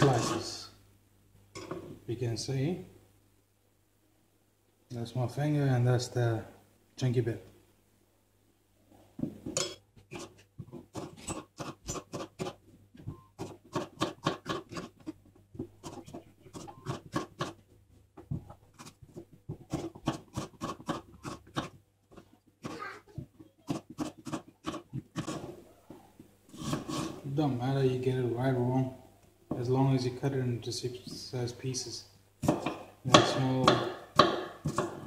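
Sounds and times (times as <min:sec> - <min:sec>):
knife chopping on board: 0:32.4 - 0:35.0.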